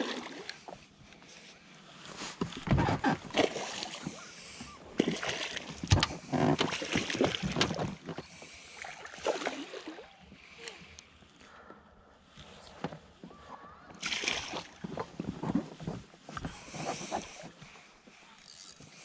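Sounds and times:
oars splashing in water: 0.0s - 0.8s, 2.5s - 10.7s, 14.0s - 15.4s
oars knocking against boat: 5.0s - 8.4s.

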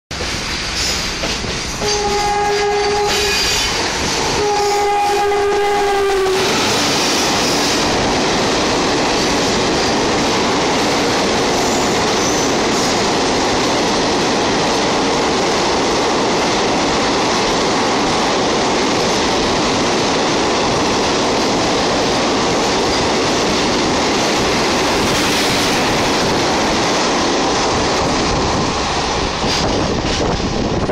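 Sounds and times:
train wheels clattering over rail joints: 0.1s - 4.9s
electric locomotive horn blasts: 1.8s - 7.8s.

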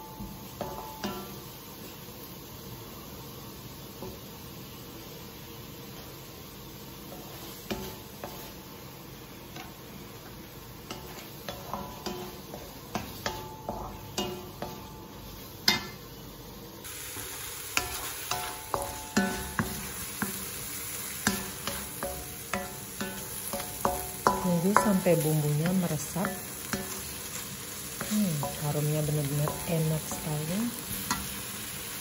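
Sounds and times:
food sizzling in a wok: 0.0s - 32.0s.

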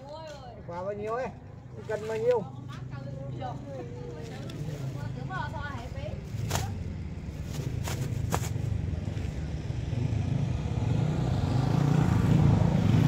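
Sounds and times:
vehicle engine rumbling past: 6.8s - 13.0s.

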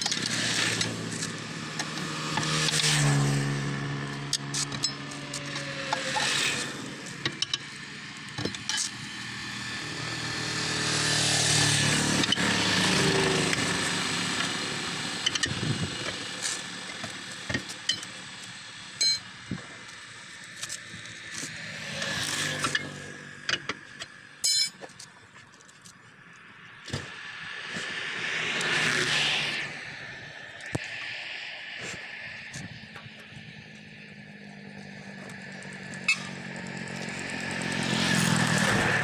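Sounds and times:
tyre lever clinking on steel rim: 24.4s - 25.1s
vehicle passing: 27.0s - 32.6s, 33.2s - 39.0s.

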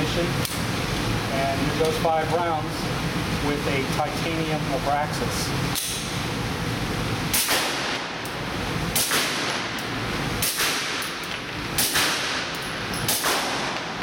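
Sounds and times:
suppressed pistol shots: 9.0s - 9.6s, 11.8s - 12.5s, 13.1s - 13.9s
gunshot echo indoors: 13.1s - 13.9s.

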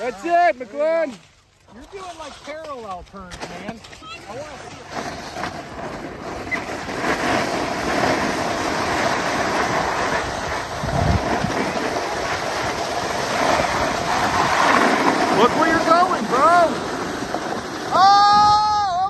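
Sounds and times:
skis sliding over snow: 0.0s - 19.0s
wind buffeting microphone: 7.6s - 19.0s.

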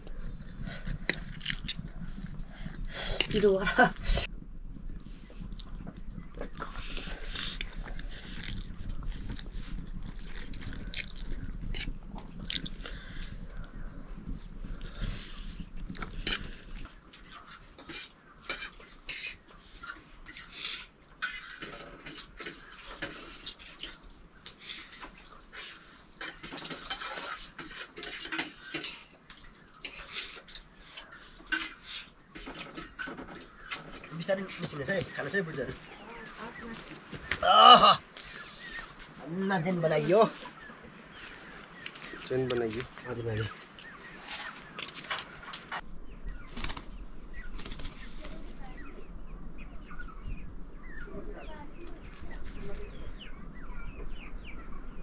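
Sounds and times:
dishes and utensils clinking: 26.2s - 34.2s.

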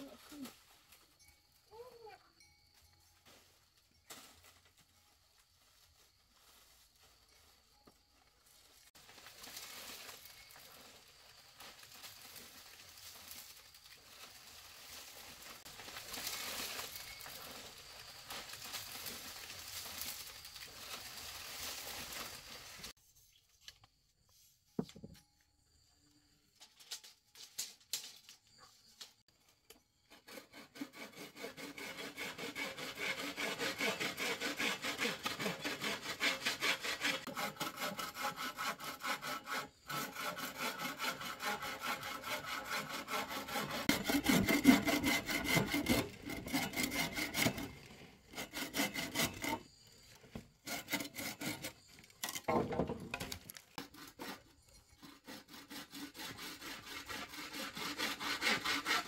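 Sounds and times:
hand saw cutting: 30.0s - 49.7s, 50.6s - 59.0s.

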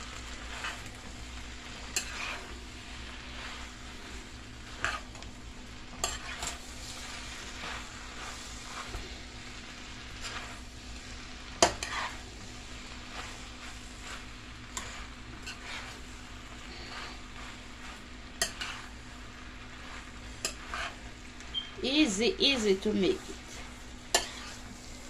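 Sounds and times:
faint sizzle: 0.0s - 25.0s
utensil scraping and knocking pan: 18.4s - 18.9s, 23.5s - 24.8s.

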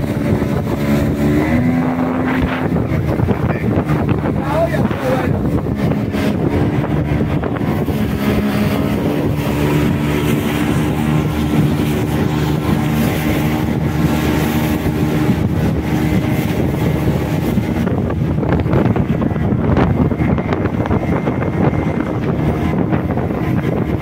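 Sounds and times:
boat engine running: 0.0s - 24.0s
water rushing past hull: 0.0s - 24.0s
wind buffeting microphone: 0.0s - 24.0s.

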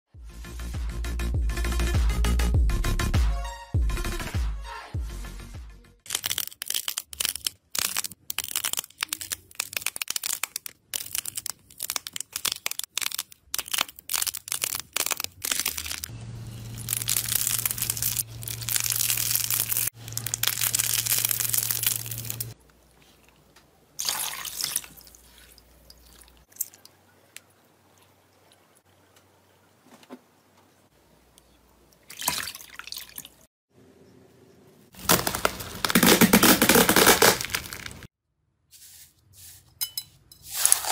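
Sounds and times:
foil crinkling under masher: 6.1s - 16.1s, 16.8s - 22.6s, 35.0s - 38.1s
foamy slime crackling: 6.3s - 16.1s, 16.7s - 23.0s.

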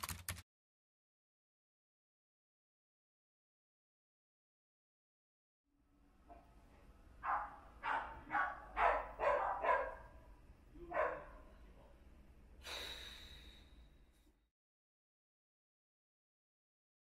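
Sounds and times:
dog barking: 7.2s - 10.2s, 10.9s - 11.5s.

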